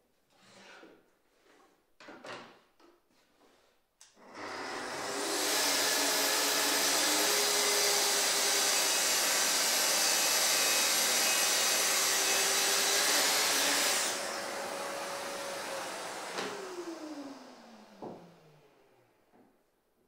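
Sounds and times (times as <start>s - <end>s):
track saw cutting wood: 4.2s - 18.8s
dust extractor running: 4.4s - 18.6s.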